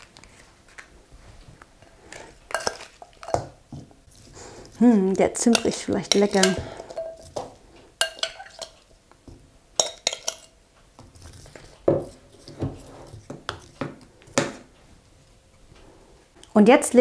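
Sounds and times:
metal spoon clinking on glass bowl: 2.5s - 3.5s, 5.4s - 7.4s, 8.0s - 8.8s, 9.8s - 10.6s.

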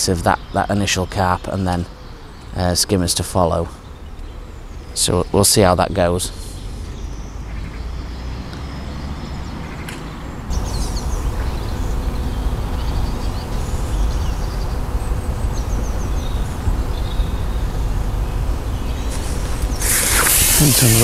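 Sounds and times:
small birds chirping: 0.0s - 21.0s
wind rumble on microphone: 10.4s - 21.0s.

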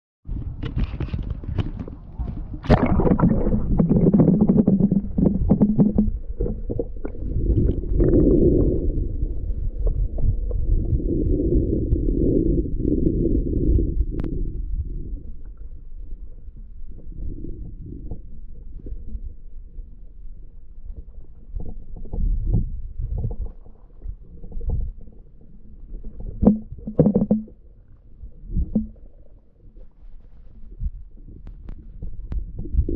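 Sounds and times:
underwater rumble of water: 0.2s - 32.9s
underwater clicks and knocks: 0.3s - 8.4s, 21.0s - 27.7s, 28.5s - 30.0s, 30.7s - 32.9s.

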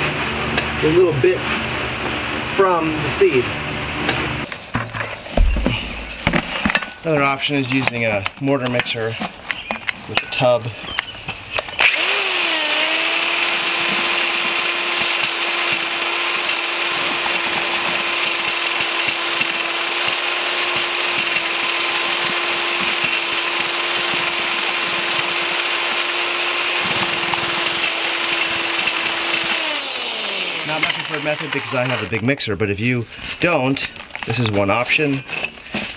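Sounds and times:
rustling hiss of straw: 4.4s - 7.8s
power drill motor whine: 11.6s - 32.2s.

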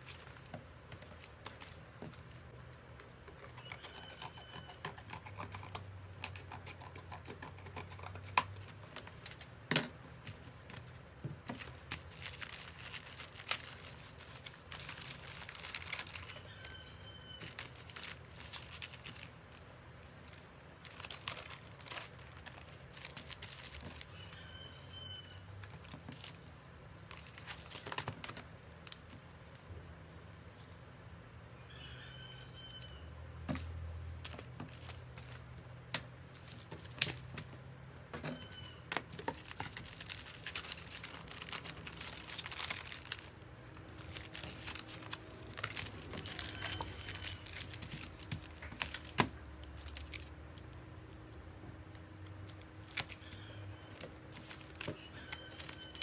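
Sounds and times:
plastic packaging crinkling: 10.2s - 29.6s, 33.5s - 35.6s, 38.5s - 51.0s, 52.2s - 56.0s.

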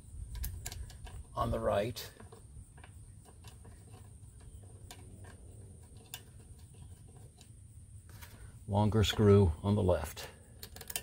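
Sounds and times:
clicks of small engine parts: 0.2s - 7.5s, 10.5s - 11.0s.

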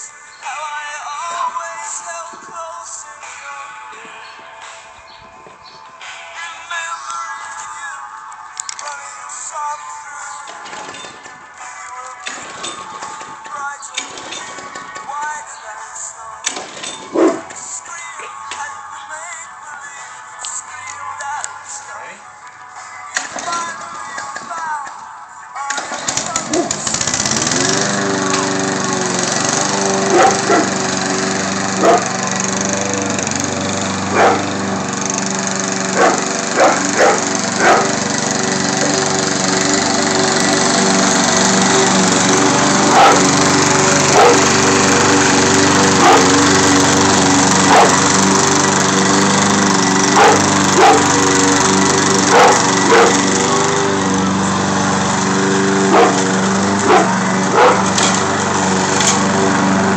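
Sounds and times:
lawn mower engine running: 0.0s - 19.2s, 20.5s - 59.9s
large dog barking: 17.1s - 17.5s, 30.1s - 30.7s, 31.8s - 32.0s, 34.1s - 34.4s, 36.0s - 37.9s, 42.9s - 43.2s, 44.2s - 44.4s, 46.0s - 46.3s, 47.7s - 48.0s, 50.2s - 51.0s, 52.3s - 53.1s, 55.9s - 56.2s, 56.8s - 57.8s.

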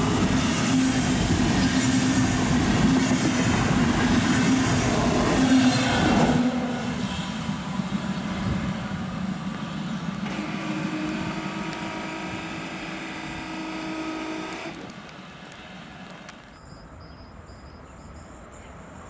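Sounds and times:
train rumbling with whining tones: 0.0s - 19.0s.

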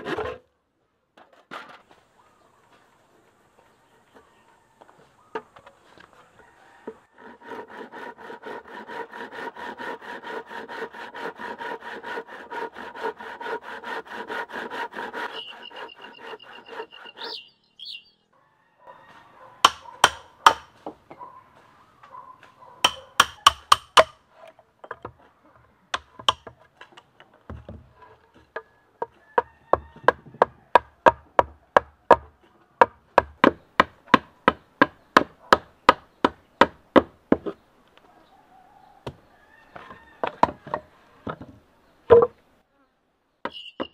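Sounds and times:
handsaw cutting bamboo: 6.7s - 17.3s, 19.6s - 20.8s, 22.8s - 24.5s, 26.0s - 26.6s
knocks on bamboo: 42.1s - 42.4s.

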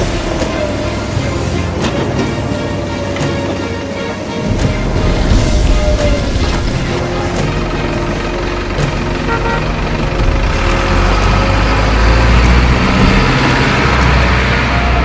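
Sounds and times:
diesel truck engine rumble: 0.0s - 15.0s.

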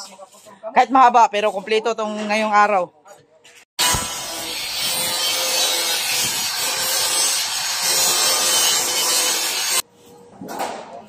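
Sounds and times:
power tool cutting sheet metal: 3.8s - 9.8s.

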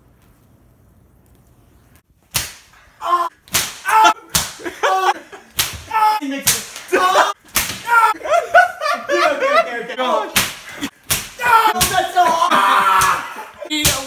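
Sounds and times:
sharp slaps: 2.3s - 2.8s, 3.4s - 4.8s, 5.5s - 8.1s, 10.3s - 12.2s, 12.9s - 14.0s
people yelling: 3.0s - 5.2s, 5.8s - 10.3s, 11.3s - 14.0s.

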